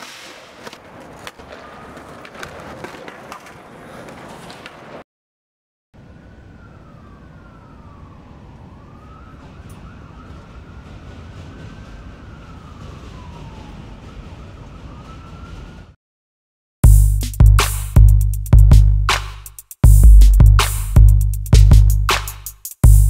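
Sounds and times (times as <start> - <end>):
city traffic rumble: 0.5 - 5.0, 6.0 - 16.0
faint siren wailing: 1.0 - 2.9, 6.0 - 16.0.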